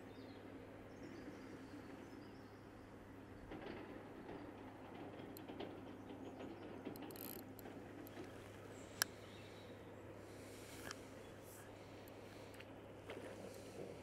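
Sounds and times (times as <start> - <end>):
fishing reel clicking and whirring: 6.9 - 8.2.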